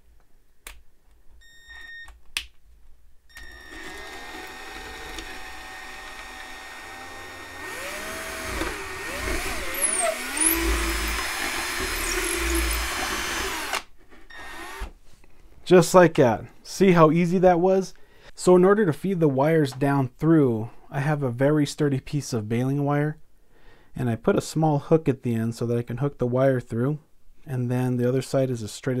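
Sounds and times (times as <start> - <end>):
electric drill boring: 3.3 - 14.9.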